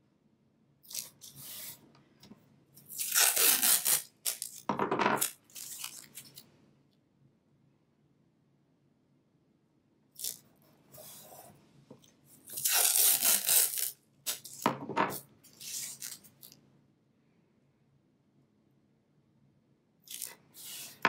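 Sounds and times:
tape ripping off roll: 2.9 - 6.3, 12.5 - 14.7.

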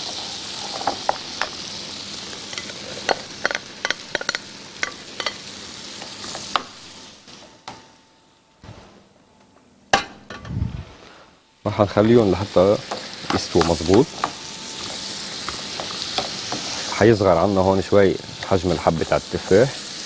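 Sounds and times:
food sizzling in a frying pan: 0.0 - 7.9, 9.9 - 20.0.

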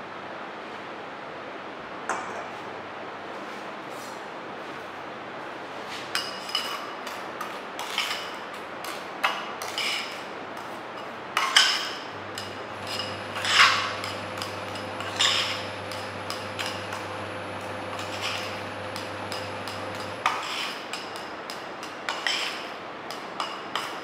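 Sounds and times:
spatula scraping porcelain dish: 9.6 - 10.2, 11.4 - 23.2
steady hum: 12.1 - 21.0.

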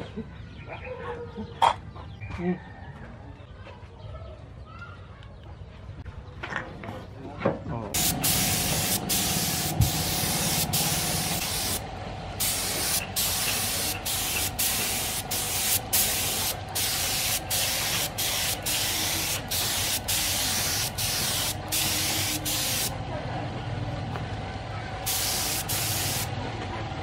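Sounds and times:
spray gun hissing: 8.0 - 11.8, 12.4 - 22.9, 25.1 - 26.3.

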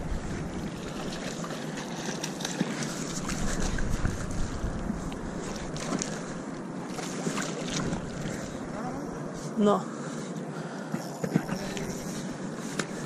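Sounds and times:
wind buffeting microphone: 0.0 - 1.4, 3.0 - 6.4
steady outdoor hiss: 0.0 - 13.0
water lapping at shoreline: 0.0 - 13.0.

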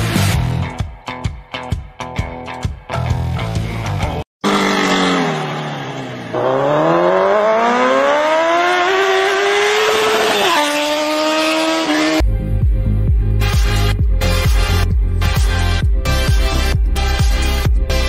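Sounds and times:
car engine revving: 4.4 - 12.2.

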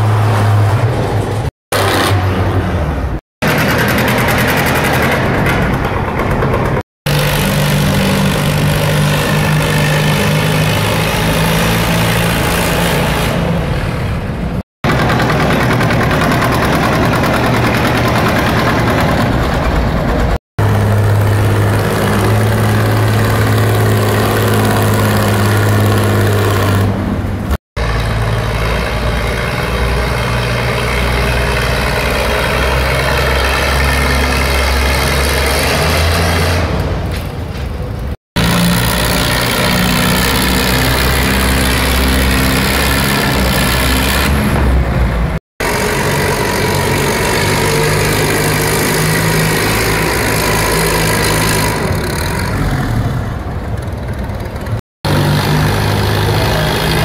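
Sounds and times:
tractor engines running hard: 0.0 - 57.0.

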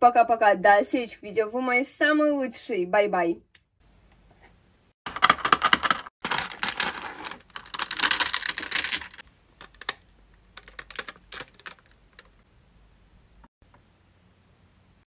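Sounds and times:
adhesive tape peeling crackle: 6.2 - 10.0.

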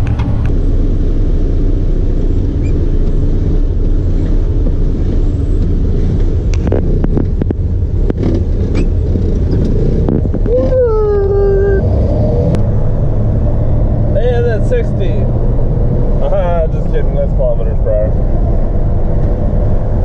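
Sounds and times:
truck engine and road rumble: 0.0 - 20.0.

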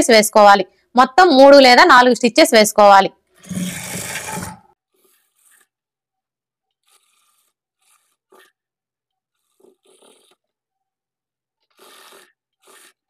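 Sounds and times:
faint rubbing and scraping: 3.3 - 6.0, 6.6 - 10.8
sewing machine stitching: 3.4 - 5.7, 6.8 - 8.5, 11.7 - 13.0.

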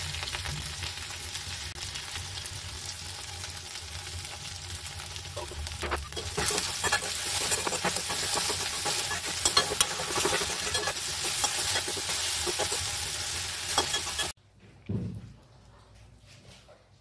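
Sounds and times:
vegetables sizzling in a wok: 0.0 - 14.4
metal spoon scraping a wok: 5.4 - 14.4.

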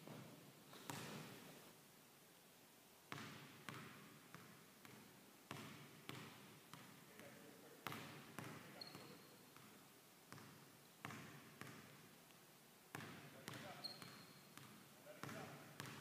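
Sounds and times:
basketball bouncing on wooden floor: 0.0 - 1.3, 3.1 - 7.0, 7.8 - 12.0, 12.9 - 16.0
short high squeak: 8.8 - 9.3, 13.8 - 14.5.

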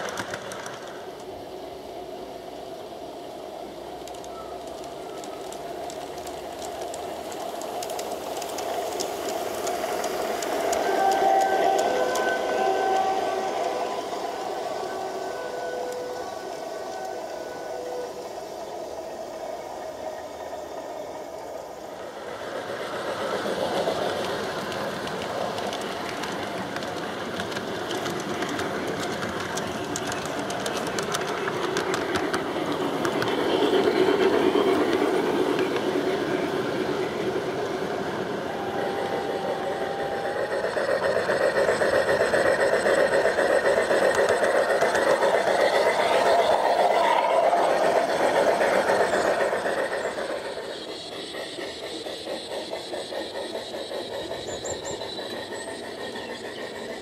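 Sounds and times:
quick clicks: 0.0 - 1.3, 4.0 - 13.7, 23.7 - 35.9, 40.5 - 50.3
model train wheels clattering: 0.0 - 1.6, 2.8 - 17.3, 20.5 - 57.0.

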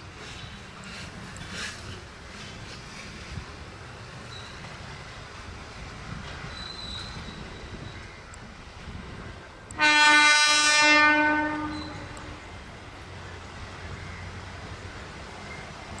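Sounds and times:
low train rumble: 0.0 - 16.0
train horn blast: 9.7 - 12.4.

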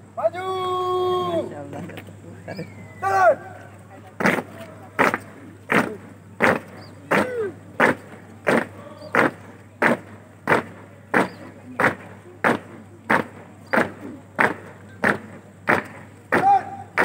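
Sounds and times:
boots stamping on pavement: 4.2 - 17.0.

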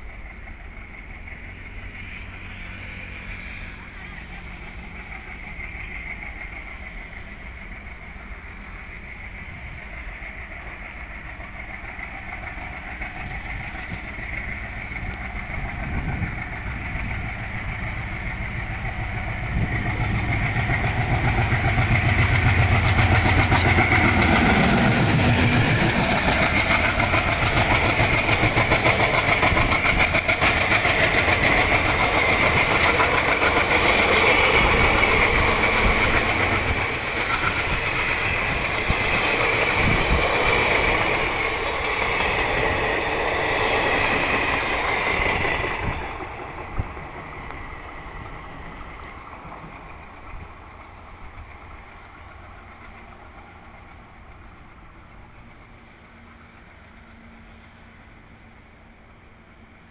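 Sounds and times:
diesel locomotive engine: 0.0 - 59.9
train coaches rumbling: 0.0 - 59.9
wheels clicking over rail joints: 11.0 - 54.5.

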